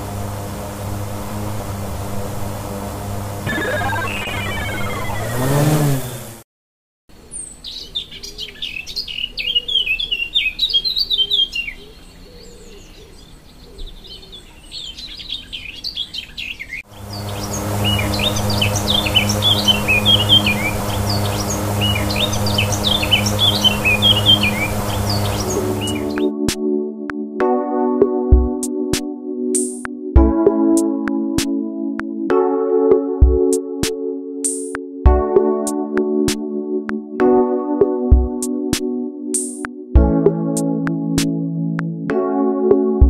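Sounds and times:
short sound effect: 0:03.4 - 0:06.2
small birds chirping: 0:03.5 - 0:05.8, 0:07.2 - 0:26.3
music with held low notes: 0:17.1 - 0:43.0.

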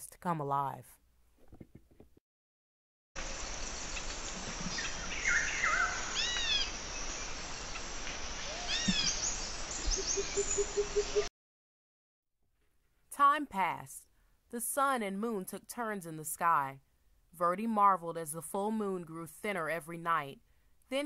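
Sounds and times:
insects hissing: 0:03.2 - 0:11.3
bird calls: 0:03.9 - 0:11.3.

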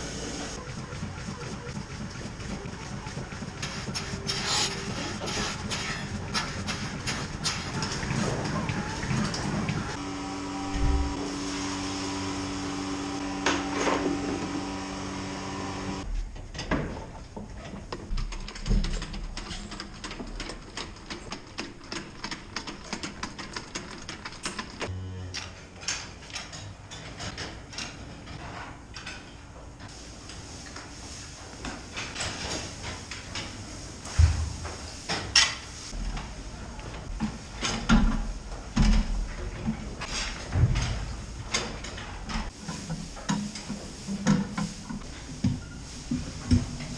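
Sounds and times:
machine hum: 0:00.0 - 0:16.0, 0:24.8 - 0:26.0
clanks and scrapes of forked hay: 0:03.6 - 0:09.5, 0:39.7 - 0:46.9.

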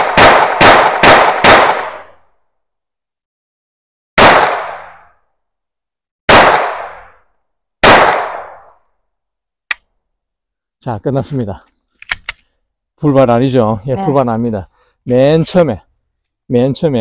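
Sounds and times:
pistol shots with echo: 0:00.0 - 0:02.2, 0:04.2 - 0:05.1, 0:06.3 - 0:07.2, 0:07.8 - 0:08.7.

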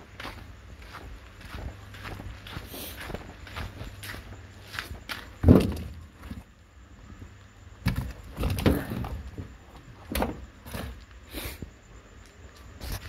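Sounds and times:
objects thumping and rustling: 0:05.2 - 0:06.5, 0:07.8 - 0:11.0.

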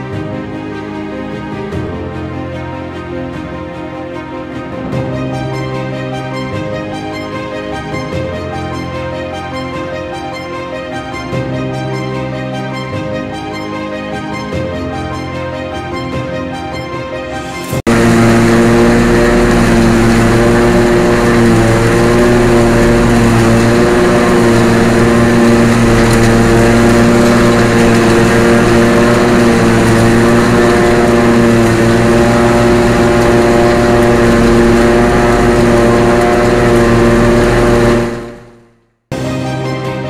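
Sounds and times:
forage harvester droning: 0:17.5 - 0:38.6
tractor engine running: 0:17.6 - 0:38.6.

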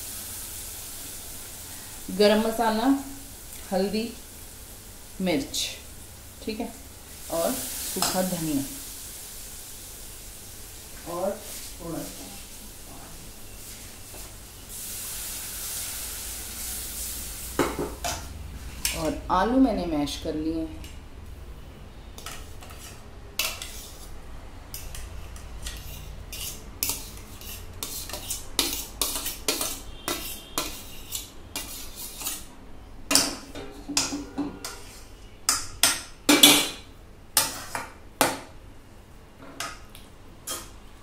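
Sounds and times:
metal spoon scraping metal pan: 0:22.2 - 0:32.5, 0:33.2 - 0:35.1, 0:37.4 - 0:37.9.

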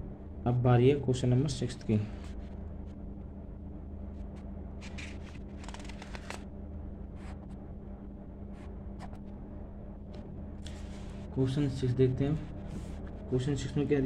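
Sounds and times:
low electrical hum: 0:00.0 - 0:14.0
paper rustling: 0:04.8 - 0:06.5.

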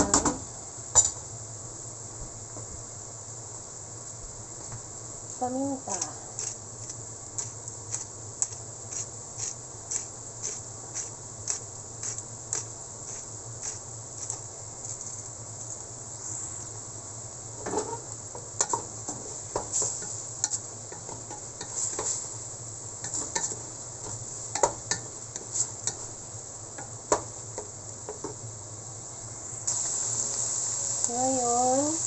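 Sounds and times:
meat sizzling in a pot: 0:05.8 - 0:15.8, 0:17.0 - 0:32.0.

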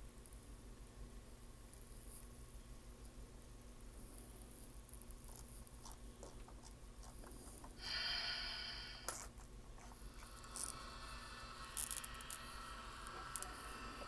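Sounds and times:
steady tones: 0:09.8 - 0:14.0
model locomotive motor whir: 0:10.4 - 0:14.0.

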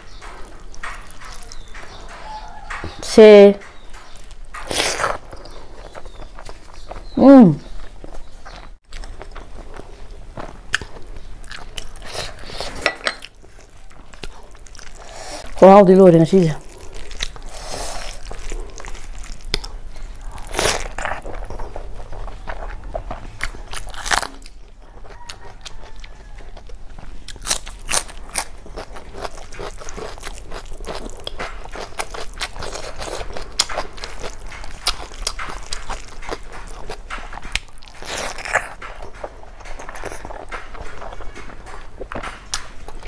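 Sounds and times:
wet chewing and lip smacking: 0:00.0 - 0:15.6, 0:16.6 - 0:43.0.

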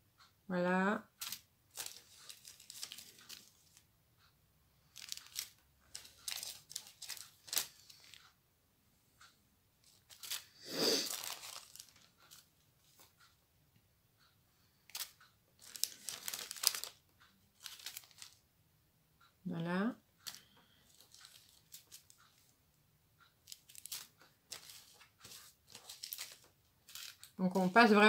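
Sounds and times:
plastic bags crinkling: 0:01.2 - 0:03.8, 0:04.9 - 0:08.2, 0:09.8 - 0:13.1, 0:14.9 - 0:18.4, 0:20.2 - 0:22.1, 0:23.5 - 0:28.0.

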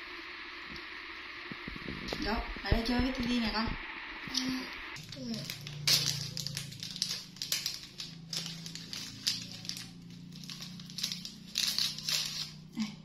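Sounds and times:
low steady hum: 0:00.0 - 0:13.0
plastic wrapper crinkling: 0:05.0 - 0:12.8.

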